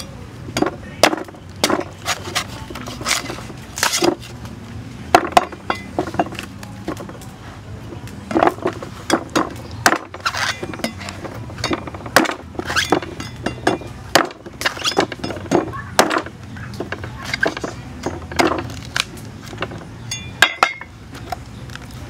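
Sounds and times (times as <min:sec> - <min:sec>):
cleaver chopping coconut: 0:00.5 - 0:04.3, 0:08.3 - 0:19.8.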